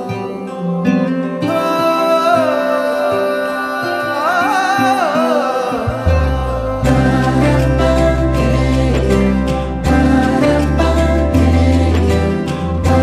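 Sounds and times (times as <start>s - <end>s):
pop instrumental music: 0.0s - 13.0s
deep steady bass note: 6.0s - 13.0s.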